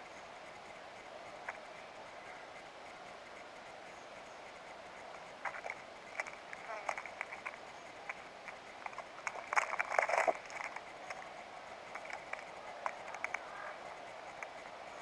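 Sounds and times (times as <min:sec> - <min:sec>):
peanut shells clicking and rattling: 0:05.4 - 0:11.3, 0:11.9 - 0:13.6.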